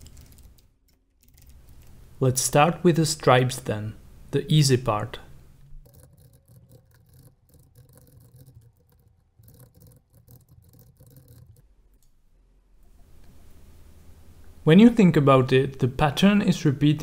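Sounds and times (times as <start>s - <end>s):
keyboard typing: 0.0s - 1.9s, 5.8s - 11.6s
low steady hum: 0.0s - 17.0s.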